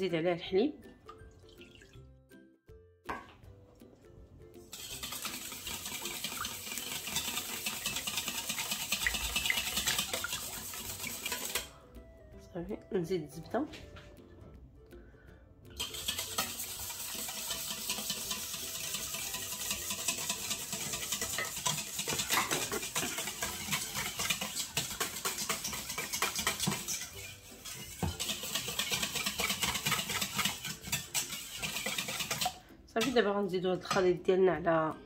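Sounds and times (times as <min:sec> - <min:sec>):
whisk beating in metal bowl: 0:04.7 - 0:11.7, 0:15.8 - 0:34.0.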